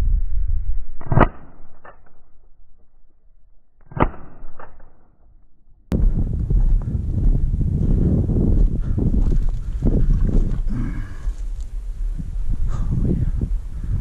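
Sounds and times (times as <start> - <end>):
wind noise: 0.0 - 1.8, 5.9 - 14.0.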